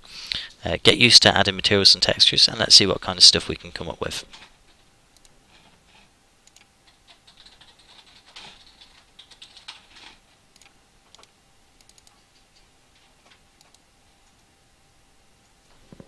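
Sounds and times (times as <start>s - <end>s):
keyboard and mouse clicking: 6.4s - 12.6s, 13.3s - 14.4s.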